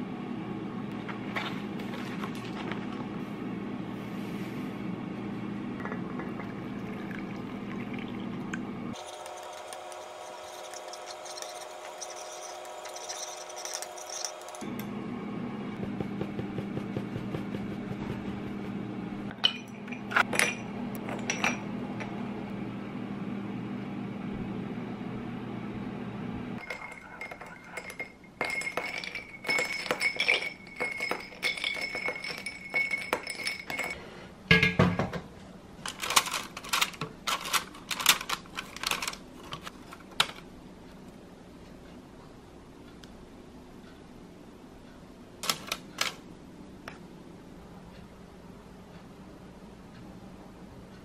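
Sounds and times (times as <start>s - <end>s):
steady low hum: 0.0s - 51.0s
spoon stirring ice in glass: 9.0s - 14.6s, 26.6s - 34.0s.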